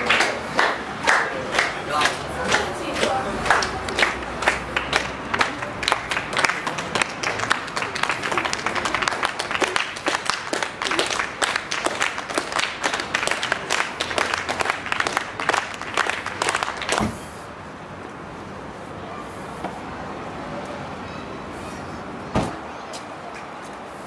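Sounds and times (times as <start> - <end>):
crowd applauding: 0.0 - 17.1.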